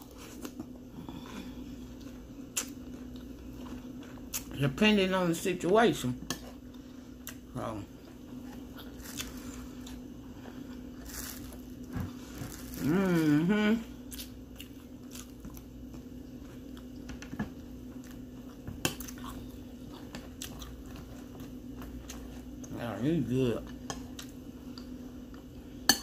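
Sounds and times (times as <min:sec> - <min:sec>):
chewing and crunching cereal: 0:00.0 - 0:04.9, 0:06.0 - 0:13.4, 0:14.0 - 0:25.8
steady low hum: 0:00.0 - 0:26.0
person humming: 0:12.7 - 0:14.0.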